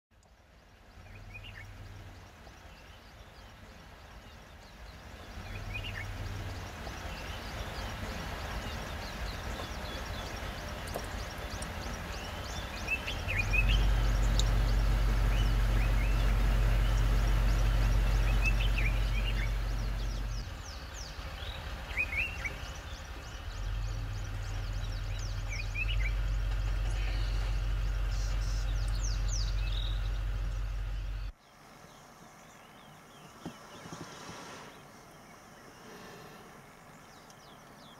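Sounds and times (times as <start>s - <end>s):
low steady rumble: 0.2s - 31.4s
bird chirps and calls: 2.6s - 31.3s.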